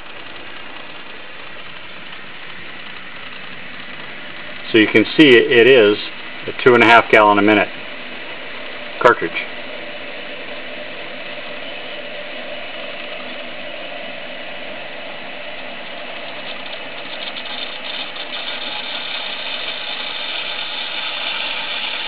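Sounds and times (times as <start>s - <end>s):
water rushing through valves: 15.6s - 22.0s.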